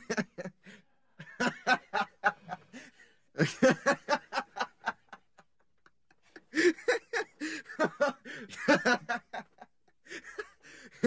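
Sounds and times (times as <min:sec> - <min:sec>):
person laughing: 0:01.2 - 0:05.2, 0:06.3 - 0:11.0.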